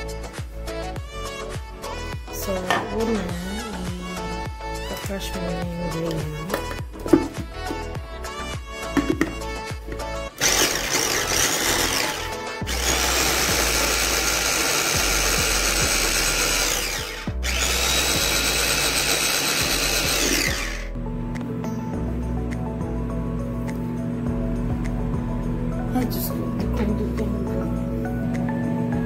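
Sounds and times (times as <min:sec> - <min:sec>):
electric food chopper running: 0:10.3 - 0:21.6.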